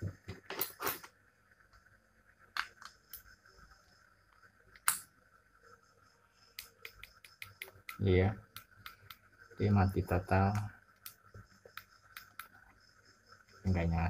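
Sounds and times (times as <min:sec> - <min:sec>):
sharp plastic clicks and taps: 0:06.6 - 0:09.3.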